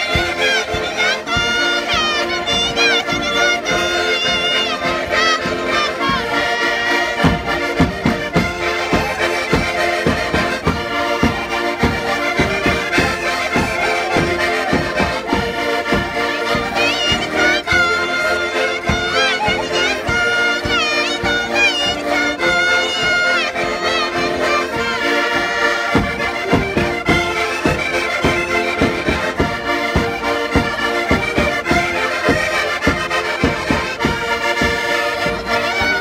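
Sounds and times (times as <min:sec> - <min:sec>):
woman singing: 0:00.0 - 0:07.2, 0:16.8 - 0:25.8
button accordions playing folk tune: 0:00.0 - 0:36.0.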